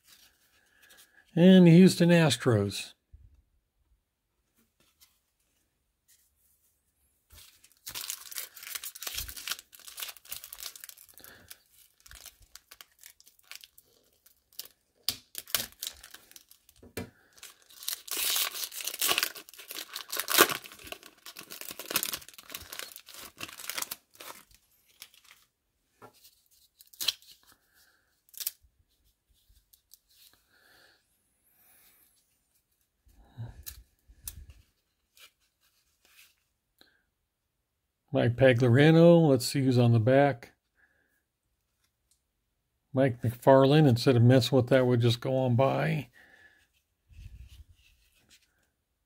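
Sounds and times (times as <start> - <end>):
foil wrapper crinkling and tearing: 7.4 - 25.5, 26.8 - 27.5, 28.3 - 28.6
cards rustling and clicking: 7.4 - 27.6.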